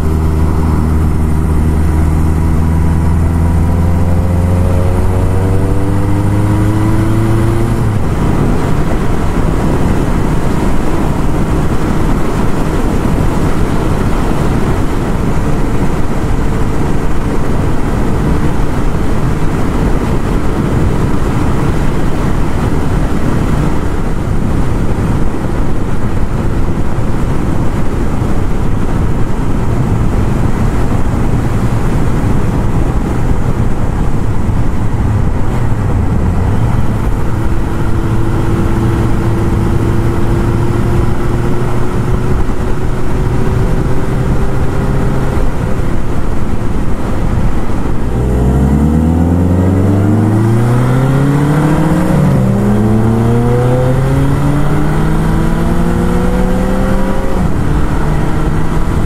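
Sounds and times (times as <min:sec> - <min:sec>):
heavy wind noise: 0:00.0 - 0:59.0
motorcycle engine accelerating: 0:00.0 - 0:59.0.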